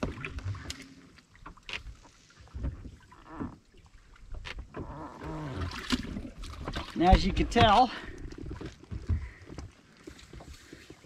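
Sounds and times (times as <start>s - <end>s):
water sloshing: 0.0s - 11.0s.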